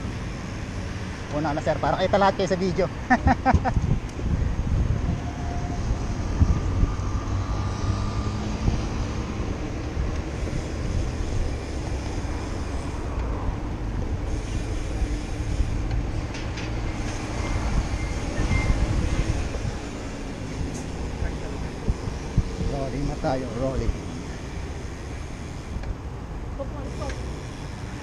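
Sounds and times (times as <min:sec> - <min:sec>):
bicycle road rumble: 0:00.0 - 0:28.0
wind on microphone: 0:03.2 - 0:27.5.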